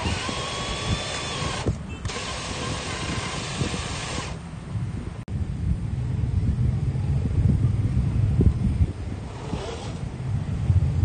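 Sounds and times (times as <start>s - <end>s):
toy car motor whining: 0.0s - 4.4s, 9.3s - 10.1s.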